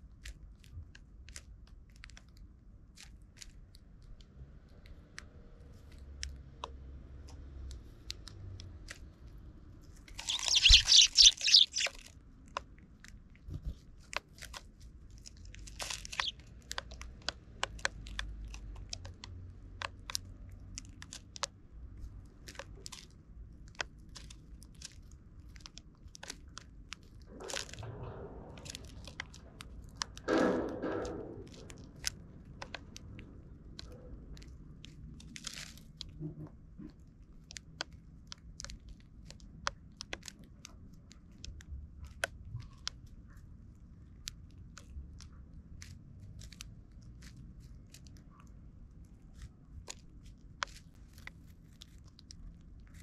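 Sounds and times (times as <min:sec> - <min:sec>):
birds pecking seed: 0:05.7 - 0:28.0
rustling flurry of wings: 0:10.1 - 0:12.0, 0:15.8 - 0:16.4.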